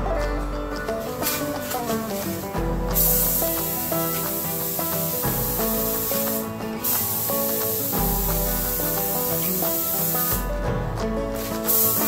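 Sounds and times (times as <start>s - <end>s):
background music: 0.0s - 12.0s
paint spray gun hissing: 2.2s - 10.4s, 11.5s - 12.0s.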